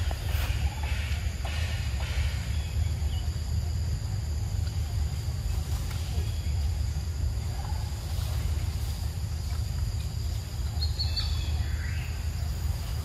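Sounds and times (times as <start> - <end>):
faint high insect-like hum: 0.0 - 13.0
steady low rumble: 0.0 - 13.0
bird chirp: 10.3 - 13.0.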